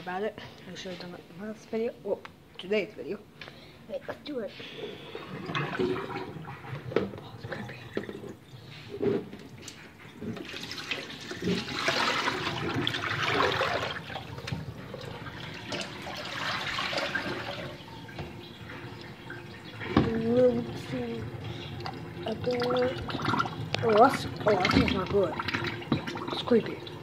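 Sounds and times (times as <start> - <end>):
liquid pouring into a steel sink: 5.0 - 27.0.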